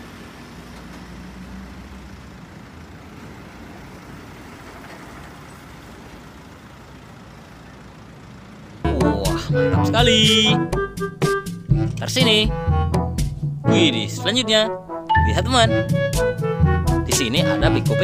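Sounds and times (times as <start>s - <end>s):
truck engine running: 0.0s - 11.8s.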